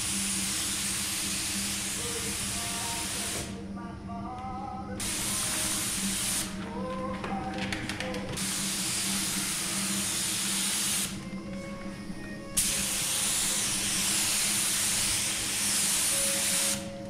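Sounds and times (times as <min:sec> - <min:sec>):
paint spray gun hissing: 0:00.0 - 0:03.6, 0:05.0 - 0:06.5, 0:08.4 - 0:11.2, 0:12.6 - 0:16.9.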